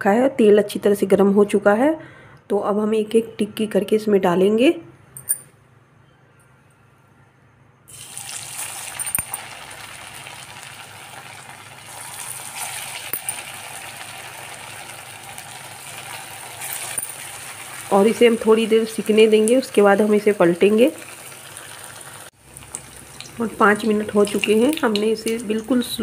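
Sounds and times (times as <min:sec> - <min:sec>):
food sizzling in hot oil: 0:07.9 - 0:26.0.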